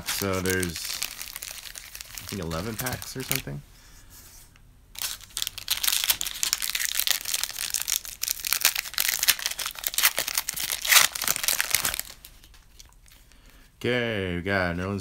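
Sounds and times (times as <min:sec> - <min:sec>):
foil wrapper tearing and crinkling: 0:00.0 - 0:03.5, 0:05.0 - 0:13.0.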